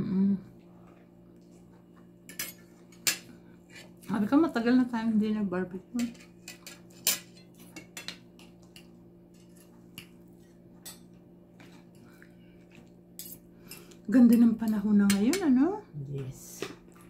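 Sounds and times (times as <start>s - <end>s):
faint steady hum: 0.0s - 17.0s
cutlery clinking on plates: 6.0s - 10.2s.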